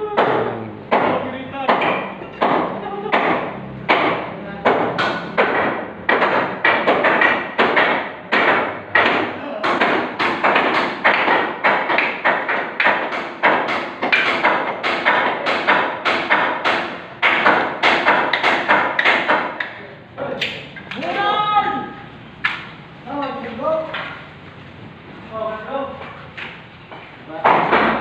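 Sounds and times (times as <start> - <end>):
hammering with ringing echo: 0.0 - 19.8.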